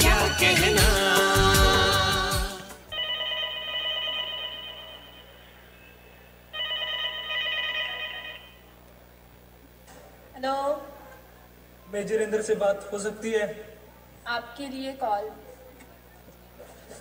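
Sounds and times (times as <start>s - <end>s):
person singing a song: 0.0s - 2.9s
telephone ringing: 2.9s - 5.8s, 6.4s - 8.8s.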